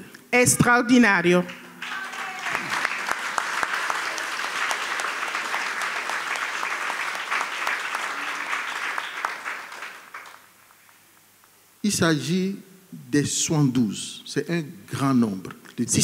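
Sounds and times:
audience applauding: 1.8 - 10.6.

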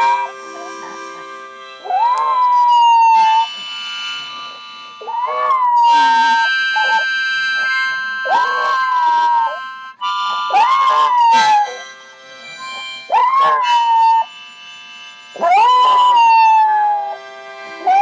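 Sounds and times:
harmonica playing blues notes: 0.0 - 18.0
dog howling: 1.8 - 3.5, 5.0 - 9.8, 10.5 - 11.9, 13.1 - 14.3, 15.4 - 17.2.

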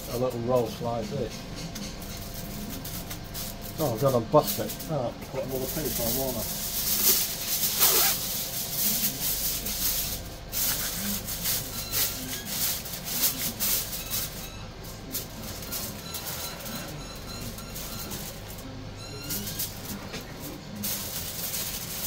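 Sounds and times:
aluminium foil crinkling: 2.0 - 22.0.

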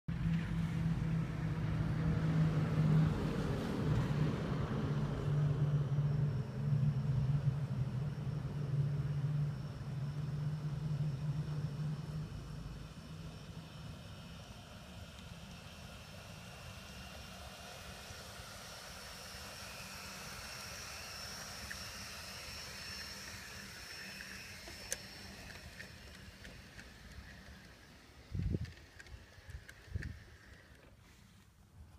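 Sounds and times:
model locomotive motor hum: 0.1 - 31.9.

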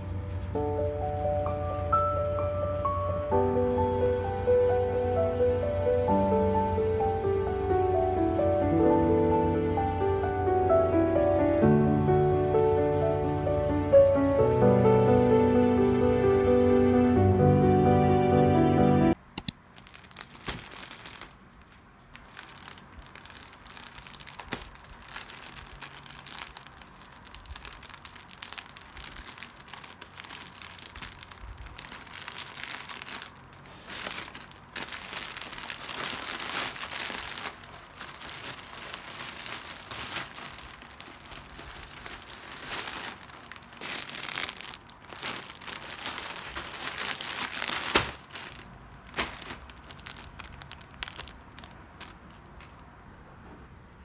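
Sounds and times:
plastic bag crinkling: 19.4 - 53.0.

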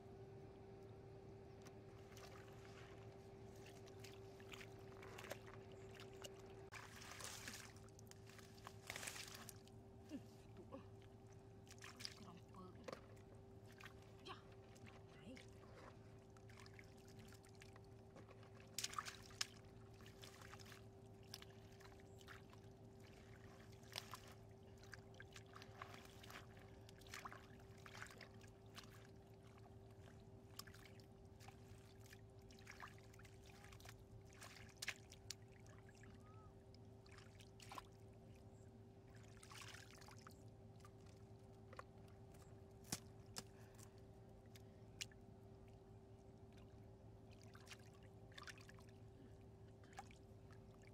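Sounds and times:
steady low hum: 0.0 - 50.9
hands splashing in muddy water: 2.0 - 9.7, 18.6 - 21.5.

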